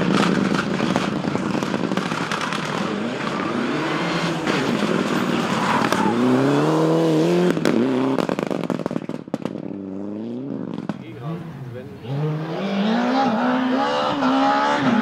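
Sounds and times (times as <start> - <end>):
exhaust cracks and pops: 0.0 - 3.5, 7.4 - 9.8, 10.6 - 11.1
rally car engine revving: 0.0 - 15.0.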